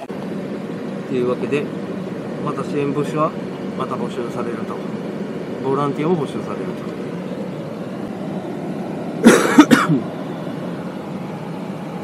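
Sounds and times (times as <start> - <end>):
vehicle road noise hum: 0.0 - 12.0
person coughing: 9.2 - 10.1.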